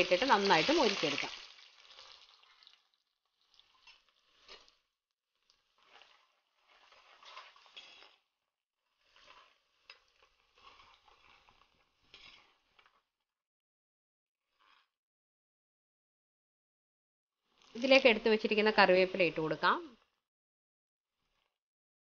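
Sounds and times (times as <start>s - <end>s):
faint sizzling in oil: 0.0s - 13.1s, 17.4s - 20.2s.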